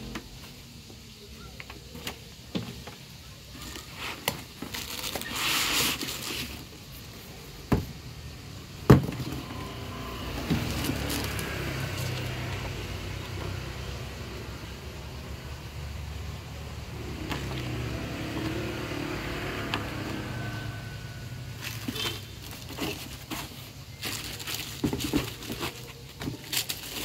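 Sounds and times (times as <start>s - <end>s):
cardboard and foam rustling: 1.6s - 8.0s, 8.8s - 13.9s, 19.9s - 27.0s.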